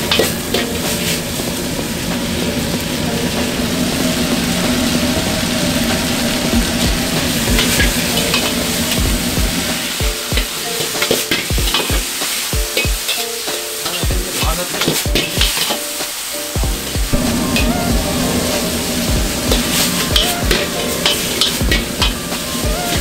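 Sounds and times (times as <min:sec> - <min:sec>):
beef sizzling in a wok: 0:00.0 - 0:23.0
ladle knocking and scraping wok: 0:00.0 - 0:23.0
steady hum: 0:16.6 - 0:23.0.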